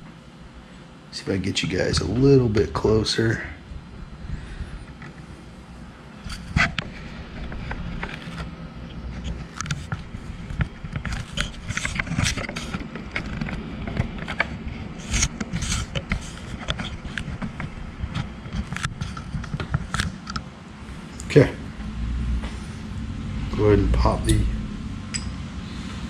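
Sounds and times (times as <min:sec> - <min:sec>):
low steady rumble: 0:00.0 - 0:15.2, 0:15.9 - 0:26.0
small parts clicking and scraping: 0:06.2 - 0:20.4.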